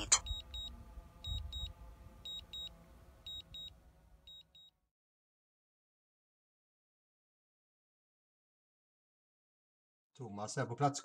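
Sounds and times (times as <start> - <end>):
remote controller short high beeps: 0.0 - 0.7, 3.3 - 3.7
low rumble: 0.0 - 4.3.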